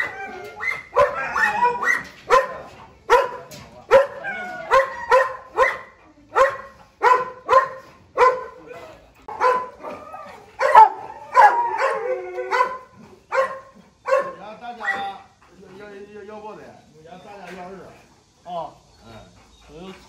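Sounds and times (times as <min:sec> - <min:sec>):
dog barking: 0:00.0 - 0:08.6, 0:09.3 - 0:15.2.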